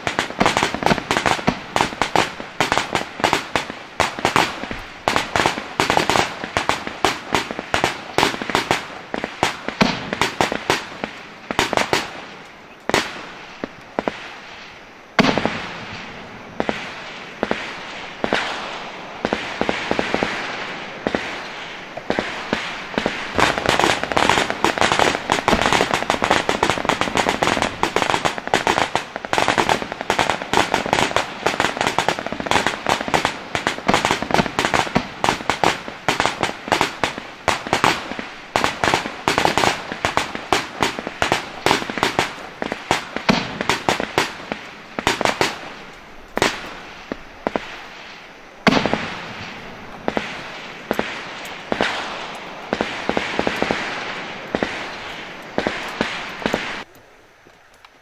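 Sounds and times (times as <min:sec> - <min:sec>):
soft hiss: 0:00.0 - 0:58.0
rapid sharp cracks and pops: 0:22.0 - 0:47.7.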